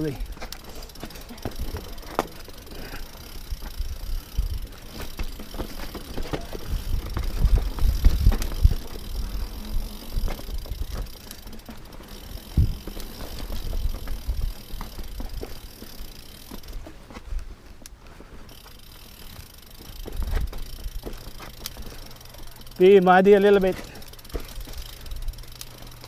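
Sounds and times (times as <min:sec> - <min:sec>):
tyres running over loose stones: 0:00.0 - 0:16.9
bike rattling: 0:00.0 - 0:26.0.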